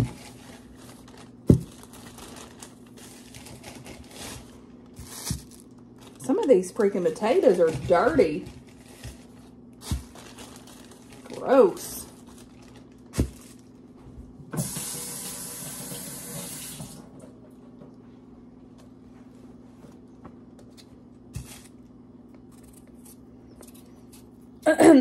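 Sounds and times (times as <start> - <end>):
kitchen faucet running: 14.6 - 17.1.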